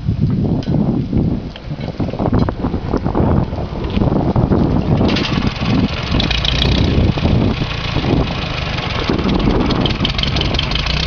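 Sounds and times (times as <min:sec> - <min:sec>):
tractor diesel engine running: 0:01.2 - 0:11.0
mechanical clatter: 0:03.8 - 0:11.0.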